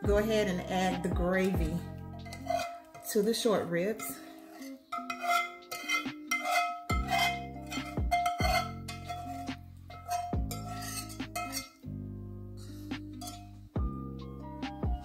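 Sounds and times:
background music: 0:00.0 - 0:15.0
whisk scraping a skillet: 0:01.6 - 0:11.8, 0:12.6 - 0:13.6.

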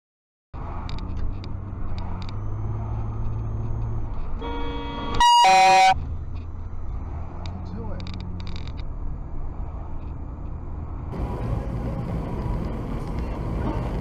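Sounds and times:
engine and road rumble: 0:00.5 - 0:14.0
car horn honking: 0:04.4 - 0:06.0.

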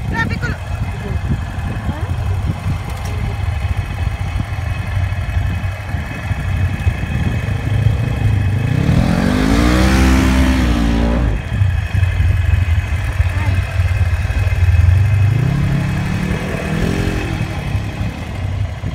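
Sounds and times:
off-road engine idling: 0:00.0 - 0:18.9.

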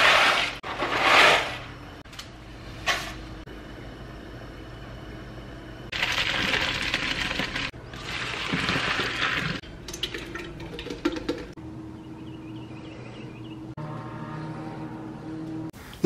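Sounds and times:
faint steady hum: 0:01.7 - 0:16.0
water pouring hard: 0:06.0 - 0:11.0.

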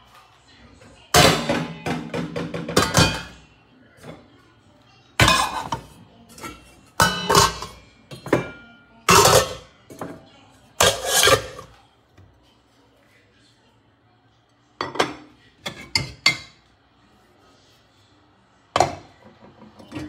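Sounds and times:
glass pot lids clattering: 0:06.4 - 0:08.2.

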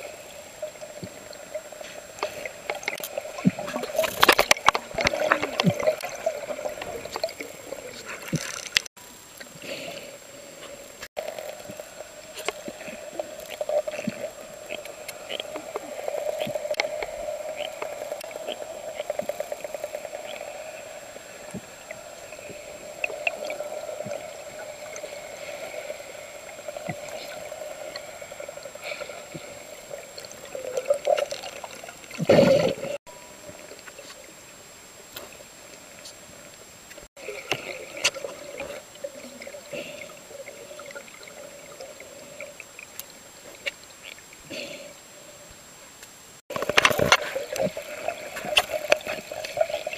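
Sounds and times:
steady underwater drone: 0:00.0 - 0:49.9
underwater water noise: 0:00.0 - 0:49.9
small clicks: 0:08.2 - 0:08.9.

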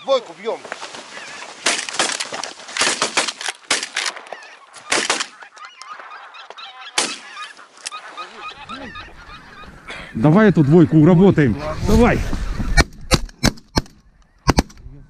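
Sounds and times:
geese honking: 0:00.0 - 0:02.4, 0:04.1 - 0:11.5
sharp crack: 0:01.6 - 0:04.3, 0:04.9 - 0:05.4, 0:07.0 - 0:07.4, 0:12.8 - 0:14.9.

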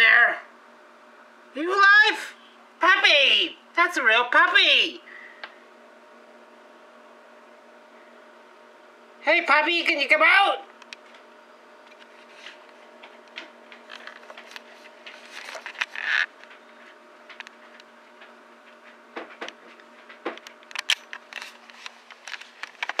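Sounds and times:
steady low hum: 0:00.0 - 0:23.0
faint clicks and rustles: 0:10.8 - 0:23.0.

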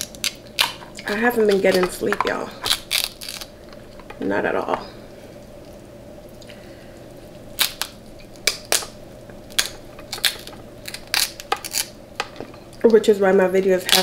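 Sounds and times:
crab shell cracking: 0:00.0 - 0:04.2, 0:07.5 - 0:12.8
faint steady hum: 0:00.0 - 0:14.0.

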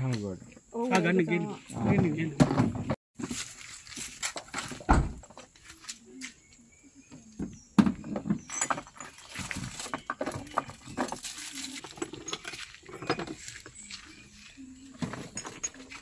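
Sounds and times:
glass bottles and metal rattling: 0:07.7 - 0:16.0.

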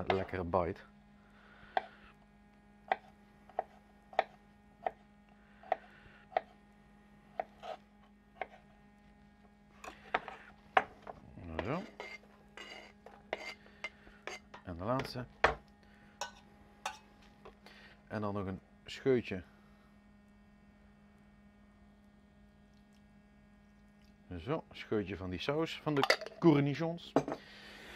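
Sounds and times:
knife scraping slices into metal tray: 0:11.6 - 0:13.6.

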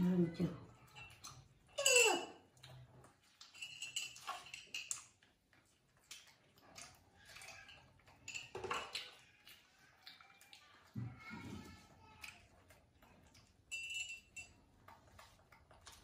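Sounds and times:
dishes clinking: 0:00.7 - 0:02.4, 0:03.4 - 0:05.2, 0:07.3 - 0:09.2.

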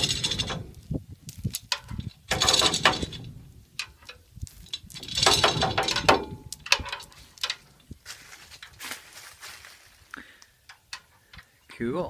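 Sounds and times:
winch ratcheting clicks: 0:01.6 - 0:07.6.

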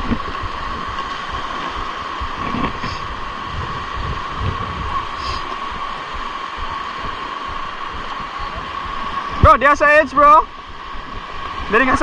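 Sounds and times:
wind buffeting microphone: 0:00.0 - 0:09.5
steady high hum: 0:00.0 - 0:12.0
waves washing over pebbles: 0:00.0 - 0:12.0.

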